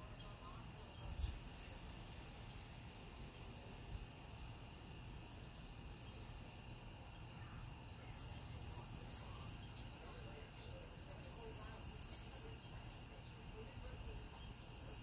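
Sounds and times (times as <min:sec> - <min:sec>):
crickets chirring: 0:00.0 - 0:15.0.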